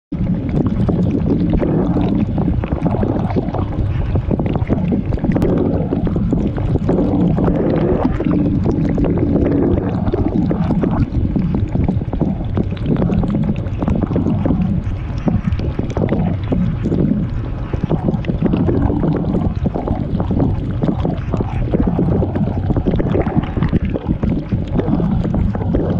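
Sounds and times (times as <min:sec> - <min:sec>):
dishwasher pump hum: 0:00.2 - 0:25.9.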